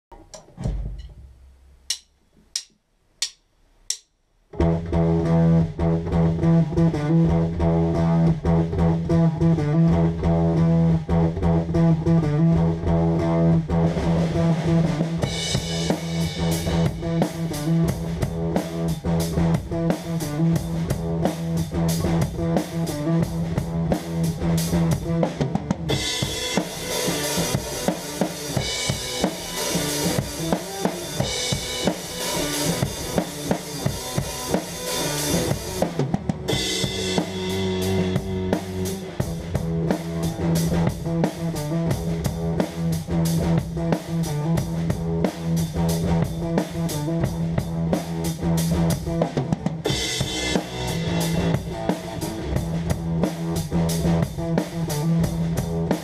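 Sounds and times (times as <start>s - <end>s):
drum kit: 0.0s - 56.0s
electric bass guitar: 0.1s - 1.6s, 4.5s - 56.0s
count-in clicks: 1.9s - 4.2s.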